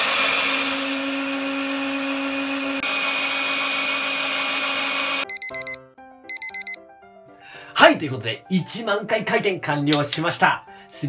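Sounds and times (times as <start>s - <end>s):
blender motor running: 0.0s - 5.3s
electronic beeping jingle: 5.2s - 6.8s.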